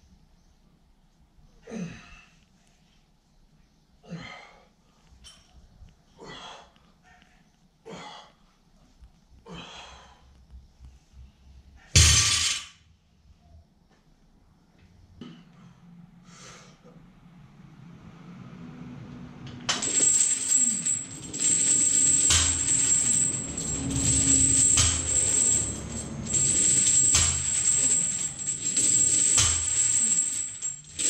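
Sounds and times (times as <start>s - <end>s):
steel chains jingling and clanking: 19.7s - 31.0s.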